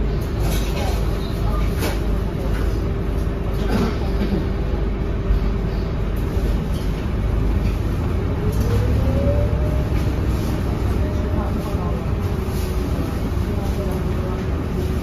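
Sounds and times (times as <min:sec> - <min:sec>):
bus diesel engine rumbling: 0:00.0 - 0:15.0
rising engine whine: 0:07.2 - 0:12.5.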